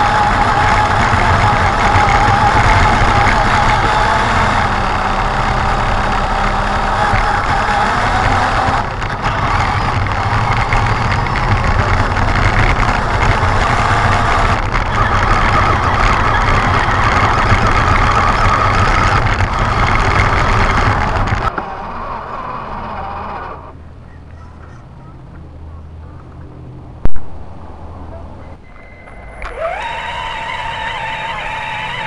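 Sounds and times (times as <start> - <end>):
tyres scrabbling on gravel: 0.0 - 21.8
electric motor and gearbox whining: 0.0 - 23.8, 28.6 - 32.0.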